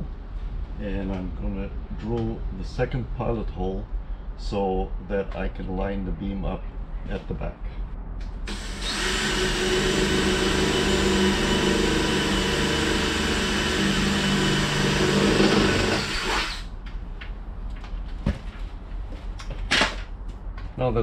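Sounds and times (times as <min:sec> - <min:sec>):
electric drill boring: 0:08.5 - 0:16.7.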